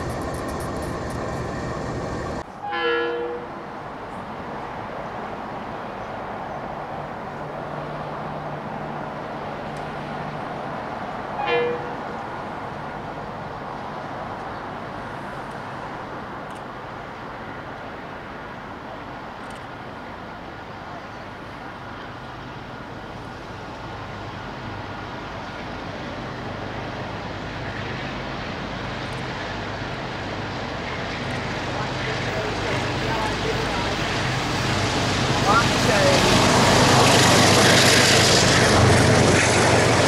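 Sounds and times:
diesel locomotive rumble: 0.0s - 4.3s, 20.6s - 40.0s
train horn toot: 2.6s - 3.5s, 11.4s - 12.0s.

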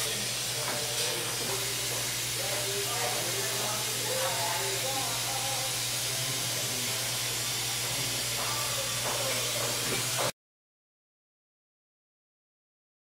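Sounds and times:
faint background voices: 0.0s - 10.3s.

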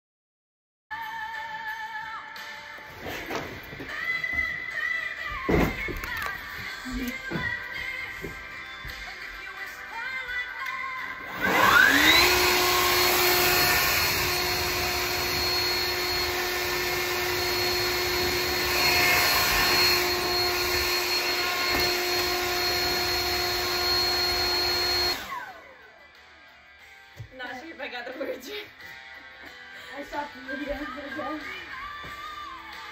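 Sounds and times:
leaf blower whining: 11.2s - 25.8s.

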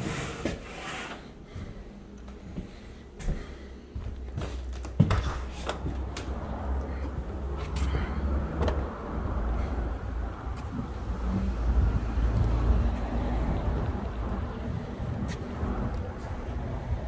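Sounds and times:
steady low rumble: 1.4s - 17.0s.

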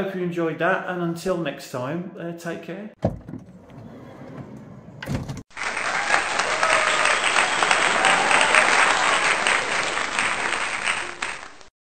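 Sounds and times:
audience applause: 5.5s - 11.7s.

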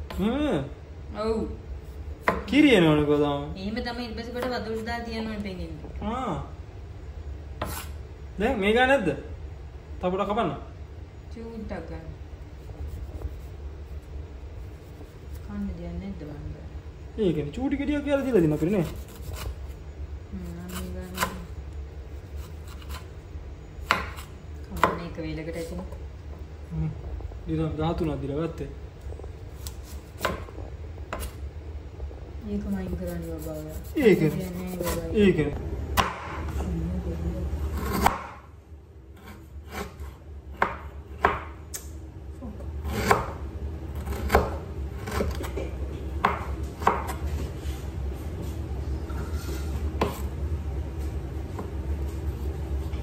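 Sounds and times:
knife chopping on wooden board: 2.2s - 2.5s, 20.7s - 21.4s, 23.8s - 25.0s, 29.6s - 30.5s, 36.0s - 36.4s, 37.8s - 38.4s, 39.2s - 41.5s, 42.8s - 43.4s, 44.0s - 45.6s, 46.2s - 47.2s, 50.0s - 50.3s.

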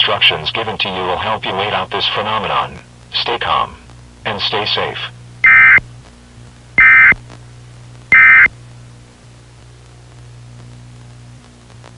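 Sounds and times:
faint low hum: 0.0s - 11.9s
buzzy digital data tones: 5.4s - 5.8s, 6.8s - 7.2s, 8.1s - 8.5s.

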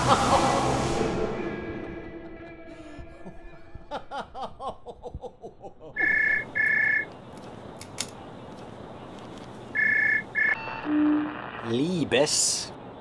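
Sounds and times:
phone ringing two-note tone: 6.0s - 7.1s, 9.8s - 11.5s.

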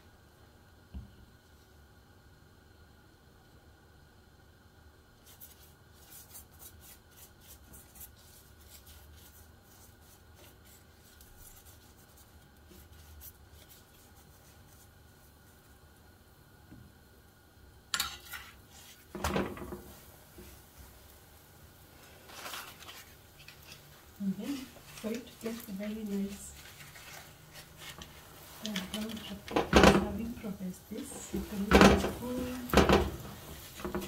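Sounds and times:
pastry brush strokes on bread: 5.1s - 16.1s, 18.2s - 19.2s, 19.8s - 34.0s
spoon scraping a pan: 18.0s - 19.1s, 22.5s - 34.0s.

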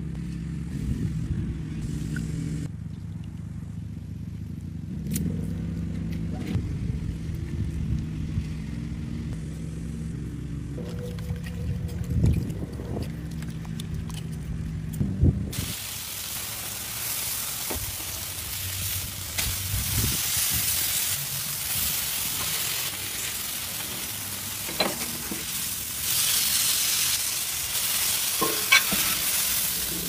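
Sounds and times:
steak sizzling on a griddle: 15.6s - 30.0s.

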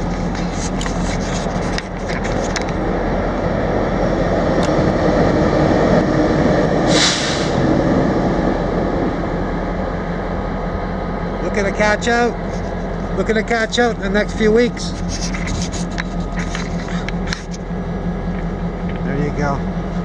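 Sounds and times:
mechanical drone: 0.0s - 20.0s
short hiss: 6.9s - 7.6s.

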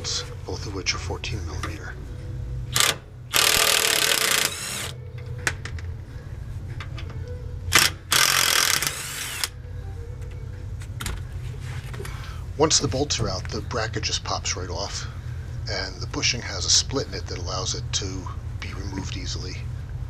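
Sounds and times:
power wrench running: 2.7s - 5.0s, 7.7s - 9.6s.

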